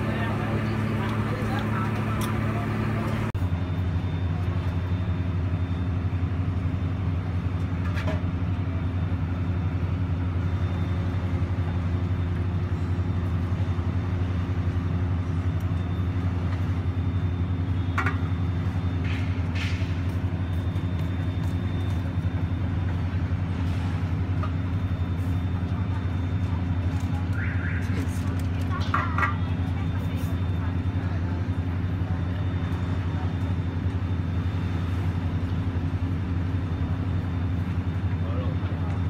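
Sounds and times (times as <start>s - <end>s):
low mechanical hum: 0.0s - 39.0s.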